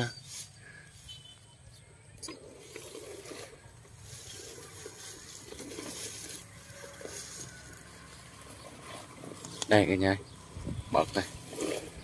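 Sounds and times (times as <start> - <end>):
footsteps through dry grass: 3.9 - 9.6.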